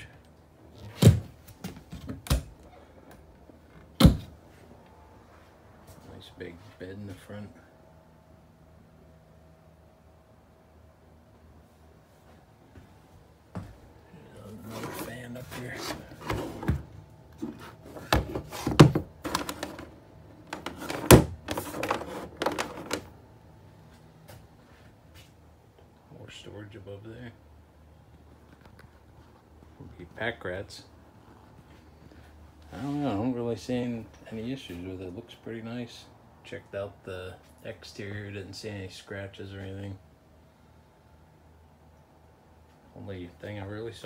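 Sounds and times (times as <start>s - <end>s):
cabinet doors thunking shut: 20.9s - 21.4s.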